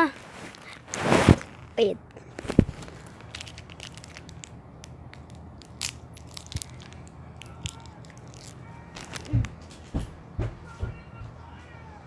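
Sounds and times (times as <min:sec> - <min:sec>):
crunches and crackles: 0:00.0 - 0:09.6
low steady hum: 0:00.0 - 0:12.0.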